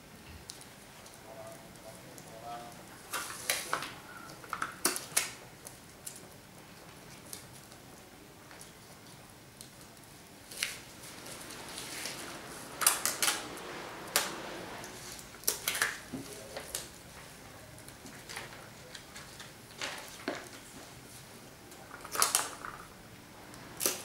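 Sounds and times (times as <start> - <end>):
paper sheets handled: 8.6 - 22.9.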